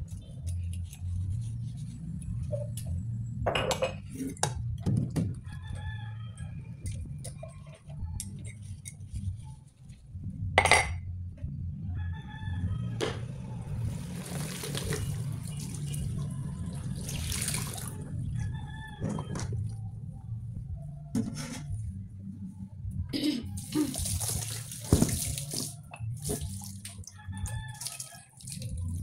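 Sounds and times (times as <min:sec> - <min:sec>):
water splashing and running: 0:13.9 - 0:18.1, 0:23.6 - 0:27.0, 0:27.7 - 0:29.0.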